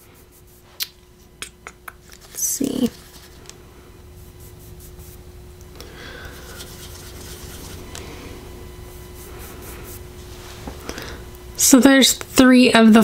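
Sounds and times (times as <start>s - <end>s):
fingertips rubbing on skin: 0.0s - 0.9s, 1.9s - 3.5s, 4.2s - 5.2s, 6.2s - 8.0s, 8.9s - 10.1s
faint steady hum: 0.0s - 13.0s.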